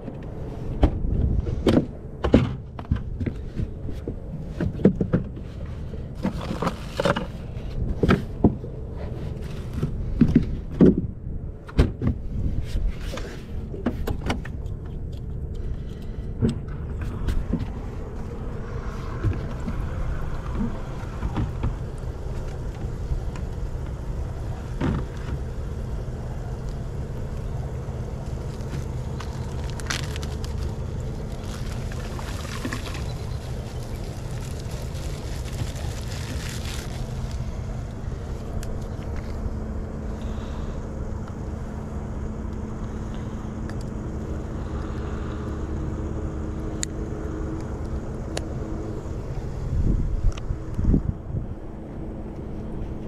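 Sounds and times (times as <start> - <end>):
faint hum: 0.0 - 53.0
low steady rumble: 0.0 - 53.0
water bubbling and splashing: 28.9 - 37.0.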